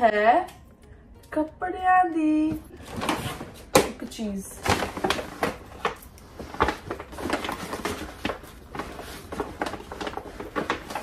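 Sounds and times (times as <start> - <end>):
paper bag rustling and crinkling: 4.5 - 11.0.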